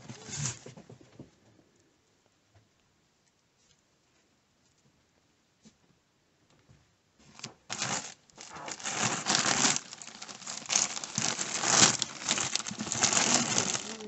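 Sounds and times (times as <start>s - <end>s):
plastic bags crinkling: 7.3s - 14.0s.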